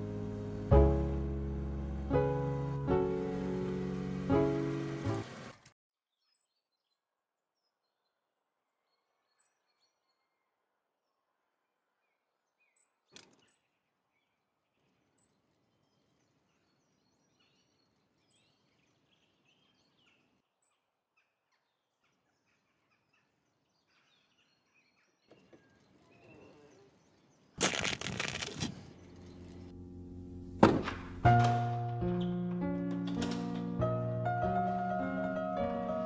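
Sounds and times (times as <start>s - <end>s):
faint high bird chirps: 6.1s - 11.2s, 12.0s - 27.6s.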